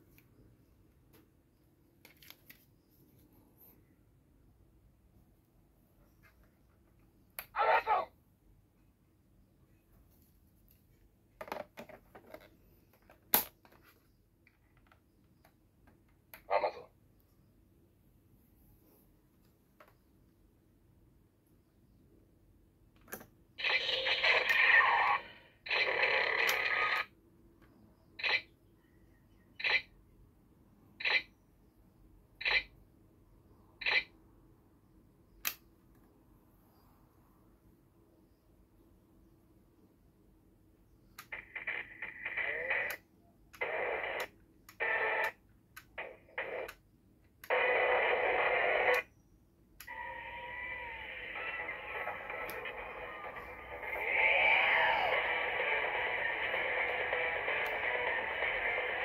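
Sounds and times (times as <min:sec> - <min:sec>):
tinny electronic toy sound effects: 0:23.6 - 0:27.1, 0:41.2 - 0:43.0, 0:49.8 - 0:59.0
toy belt electronic sound effects: 0:23.6 - 0:27.1.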